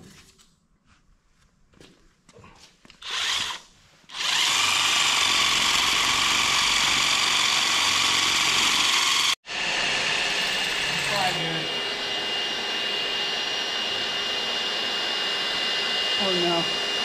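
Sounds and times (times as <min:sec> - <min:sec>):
drill boring into concrete: 0:03.0 - 0:17.0.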